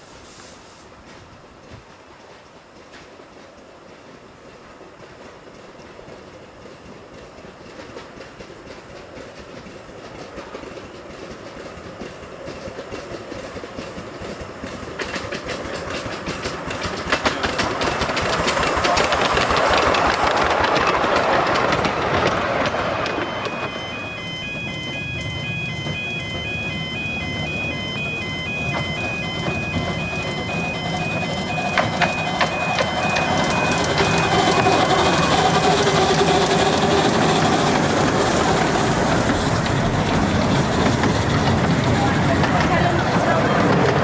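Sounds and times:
miniature steam train passing: 0:00.0 - 0:44.0
train clicking and clatter: 0:00.0 - 0:44.0
level-crossing warning alarm: 0:21.6 - 0:37.9.

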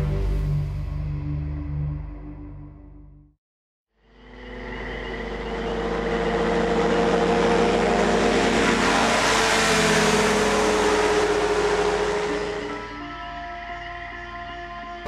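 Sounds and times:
microlight engines and propellers: 0:04.0 - 0:15.0.

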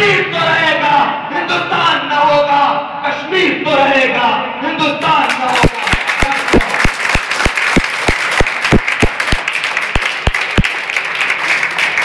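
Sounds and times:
audience applauding: 0:05.3 - 0:12.0
loud even claps or thumps: 0:05.6 - 0:10.7.

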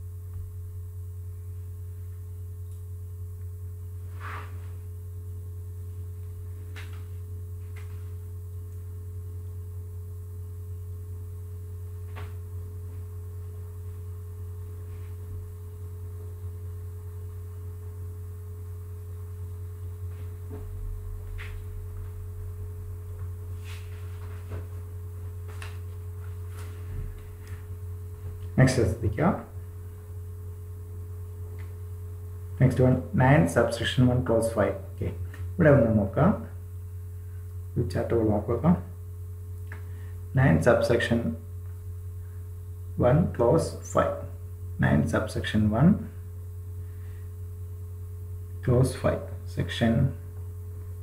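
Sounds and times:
low electrical hum: 0:00.0 - 0:51.0.

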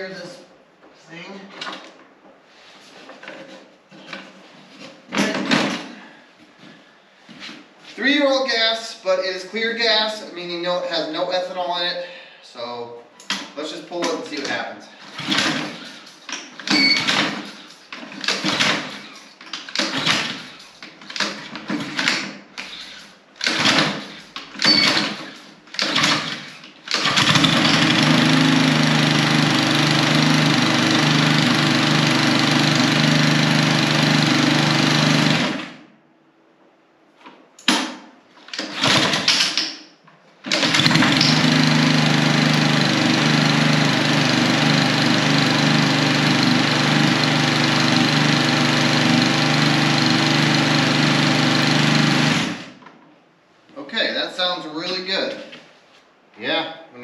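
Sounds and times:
recoil starter pulls: 0:14.0 - 0:35.7, 0:38.5 - 0:39.7, 0:40.4 - 0:52.8
mower engine cranking: 0:14.0 - 0:35.8, 0:38.5 - 0:39.7, 0:40.4 - 0:52.8
mower engine running: 0:27.0 - 0:35.6, 0:40.5 - 0:52.7.

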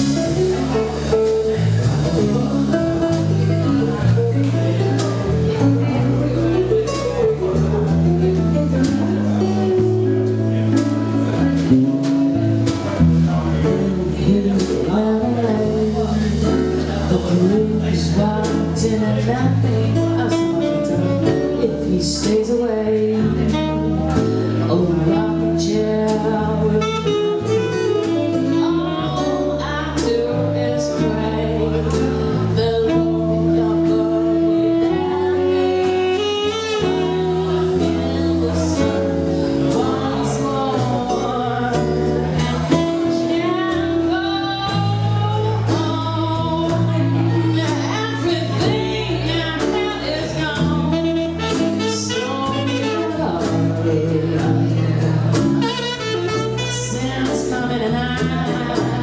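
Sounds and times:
jazz band playing a ballad: 0:00.0 - 0:59.0
woman singing: 0:13.6 - 0:59.0
tenor saxophone: 0:23.4 - 0:25.7, 0:26.6 - 0:46.4, 0:47.0 - 0:58.2.

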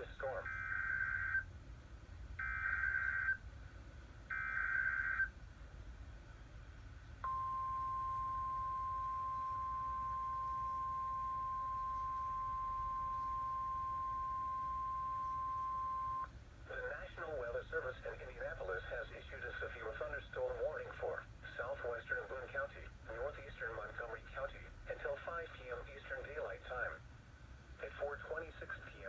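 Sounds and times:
steady warning alarm tone: 0:02.4 - 0:03.4, 0:04.3 - 0:05.3, 0:07.2 - 0:16.3.

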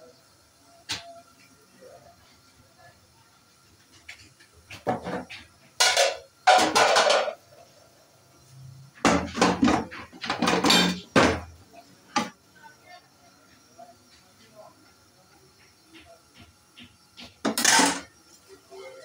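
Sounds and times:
plates clattering: 0:04.7 - 0:07.4, 0:09.0 - 0:11.5, 0:17.4 - 0:18.1.

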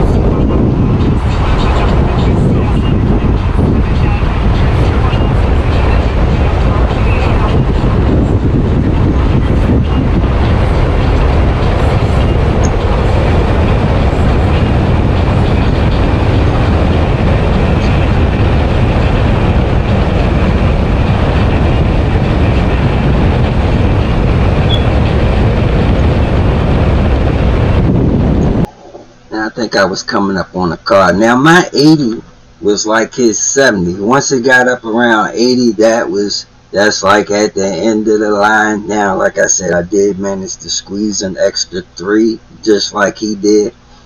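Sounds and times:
wind and road noise roar: 0:00.0 - 0:29.0.

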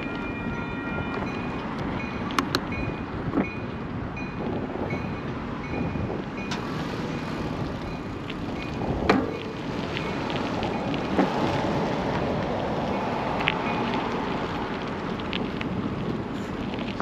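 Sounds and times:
bicycle rolling on asphalt: 0:00.0 - 0:17.0
sharp clicks: 0:02.3 - 0:02.8.

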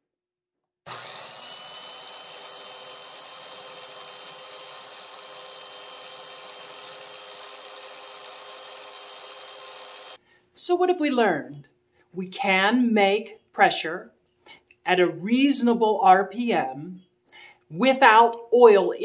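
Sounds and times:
power drill whining: 0:00.9 - 0:10.2.

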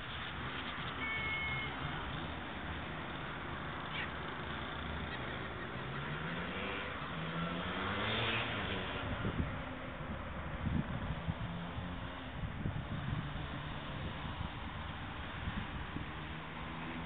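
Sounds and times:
drawn-out rising and falling call: 0:00.0 - 0:10.4
wind buffeting microphone: 0:08.8 - 0:16.4.

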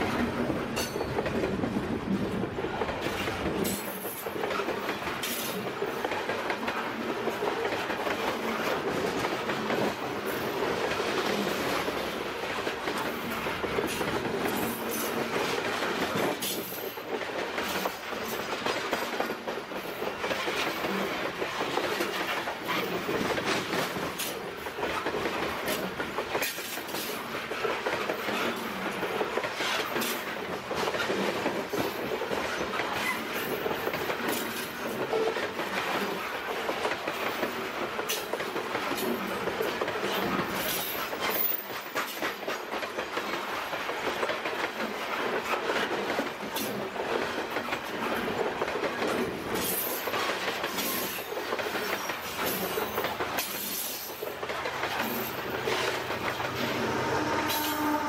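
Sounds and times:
wheels clicking over rail joints: 0:00.0 - 0:58.0
freight cars rumbling on rails: 0:47.6 - 0:58.0.

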